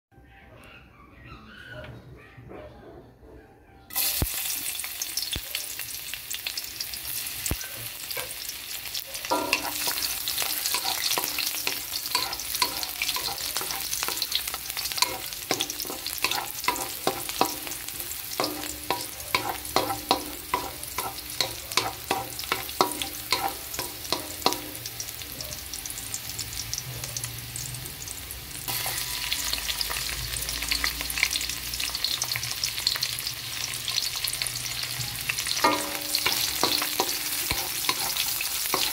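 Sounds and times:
garlic sizzling in hot oil: 3.9s - 38.9s
wooden spatula scraping wok: 9.3s - 23.7s.

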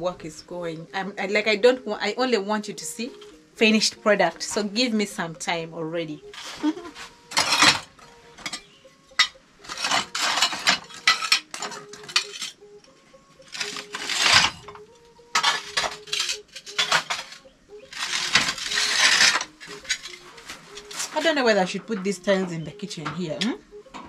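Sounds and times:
tile pieces clinking and scraping: 9.2s - 12.5s, 13.6s - 14.5s, 15.4s - 20.2s.

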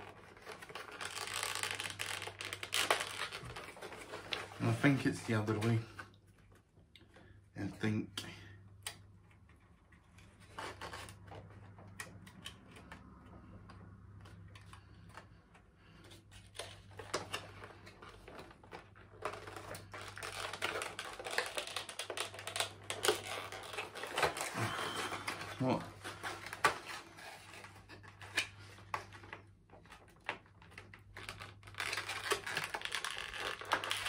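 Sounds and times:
packaging rattling and rustling: 0.0s - 5.8s, 16.1s - 34.0s.

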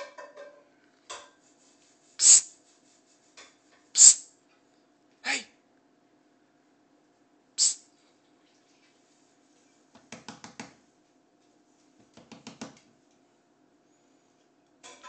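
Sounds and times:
sharp puffs of breath: 2.2s - 2.6s, 4.0s - 4.3s, 7.6s - 7.8s.

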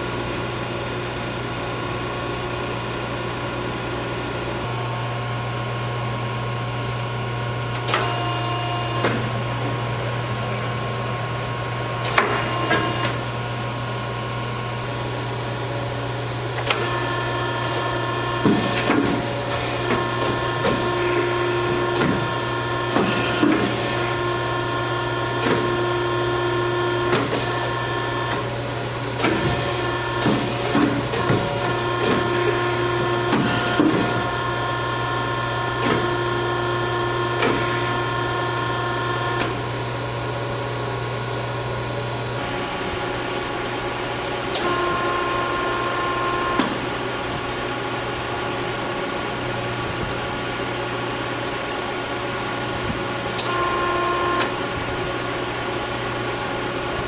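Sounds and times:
hydraulic pump humming: 0.0s - 57.0s
machine whine: 41.4s - 51.2s.

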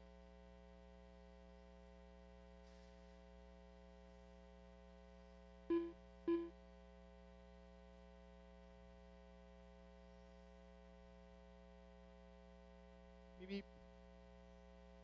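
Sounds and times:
steady electrical hum: 0.0s - 15.0s
short electronic beeps: 5.7s - 6.5s.

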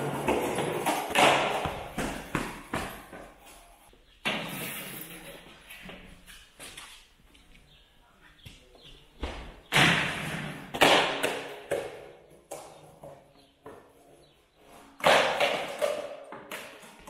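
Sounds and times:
skateboard clacks: 0.0s - 3.0s, 9.8s - 13.9s, 15.0s - 17.0s
skateboard scraping and rolling: 0.0s - 3.4s, 10.1s - 17.0s.

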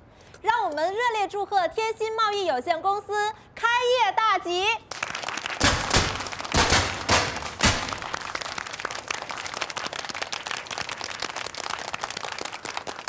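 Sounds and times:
crowd clapping: 4.9s - 13.0s
confetti cannon pop: 5.6s - 8.4s.

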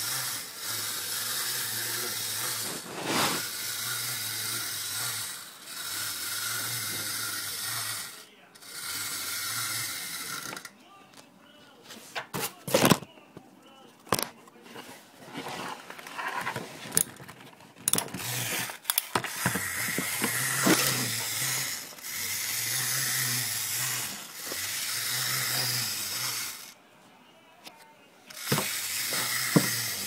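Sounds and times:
toy clicks: 0.0s - 2.6s, 17.8s - 26.8s, 28.3s - 30.0s
clockwork gear whirring: 0.0s - 10.7s, 17.8s - 26.8s, 28.3s - 30.0s.

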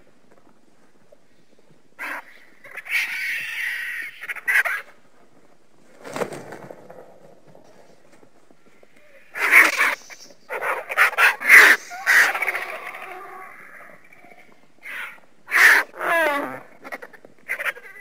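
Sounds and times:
raspy creature screeching calls: 9.3s - 16.6s.

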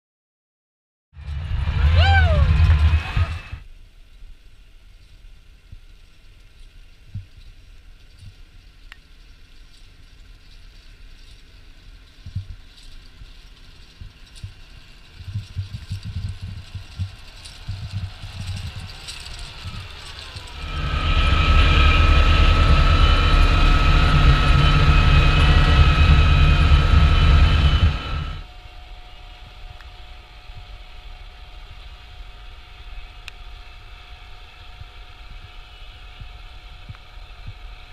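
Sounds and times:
diesel engine with whine: 1.2s - 3.7s, 14.6s - 37.9s.

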